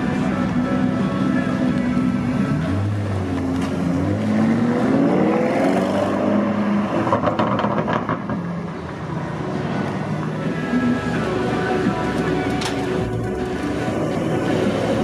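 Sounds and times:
sports car engine accelerating: 1.6s - 8.9s.

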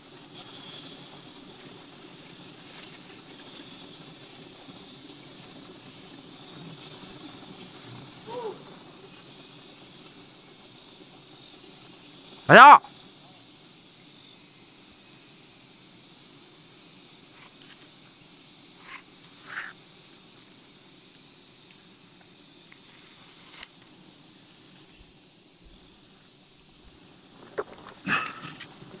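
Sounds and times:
high insect drone: 0.0s - 29.0s
rope rustling against tree trunk: 18.8s - 19.7s, 22.7s - 23.9s.

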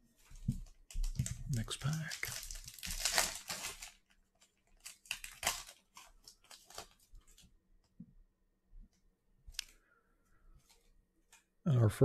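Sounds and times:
foil wrapper tearing and crinkling: 1.0s - 7.5s.

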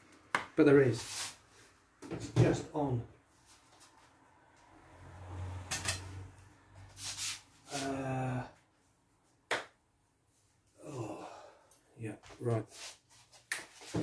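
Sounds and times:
man humming: 7.7s - 8.6s, 10.8s - 11.5s.

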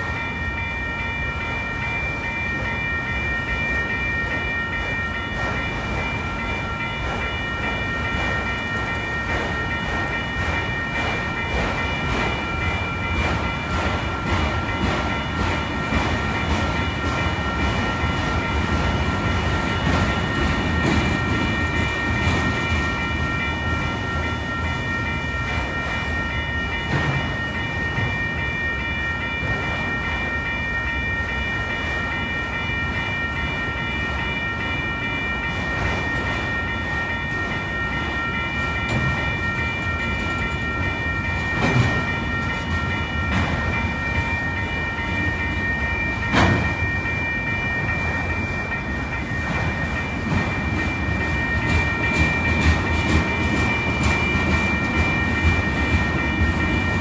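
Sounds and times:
crossing bells ringing: 0.0s - 57.0s
freight train rumble: 0.0s - 57.0s
train wheel clacks: 0.0s - 57.0s.

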